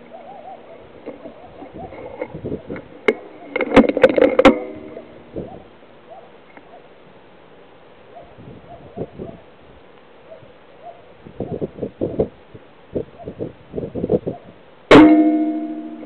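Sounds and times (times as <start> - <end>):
rifle clicks and knocks: 3.1 - 4.6.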